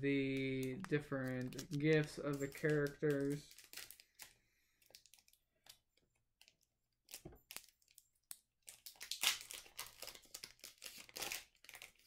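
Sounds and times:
card decks clicking and rustling: 0.2s - 3.9s
plastic wrapping crinkling: 0.2s - 12.0s.

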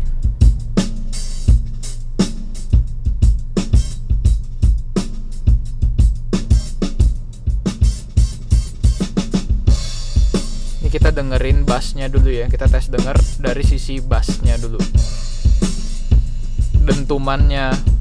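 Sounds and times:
kick drum hits: 0.0s - 0.9s
steady bass line: 0.0s - 18.0s.

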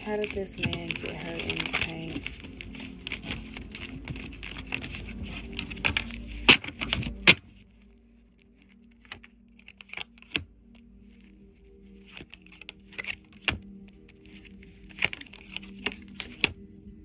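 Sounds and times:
cards shuffled by hand: 0.0s - 16.6s
card snaps: 14.2s - 16.6s.

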